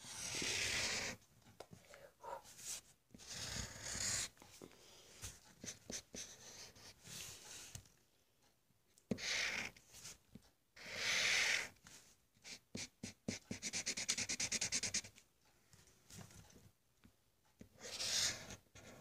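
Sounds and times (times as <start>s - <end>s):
pencil scratching on paper: 0.0s - 1.2s, 2.2s - 4.5s, 5.2s - 7.8s, 9.1s - 10.2s, 10.8s - 11.7s, 12.4s - 15.1s, 17.6s - 19.0s.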